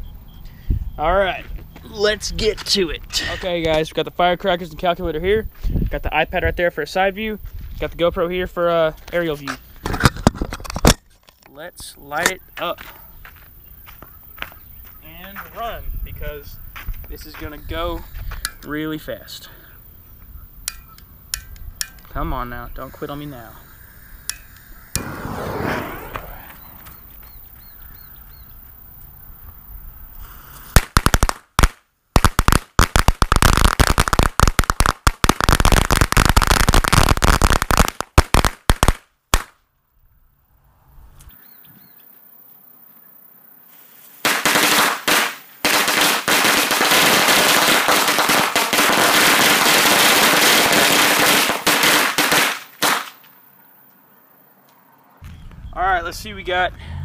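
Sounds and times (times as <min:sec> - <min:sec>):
firecrackers crackling: 0:24.2 - 0:27.5, 0:30.5 - 0:39.6, 0:44.2 - 0:53.4.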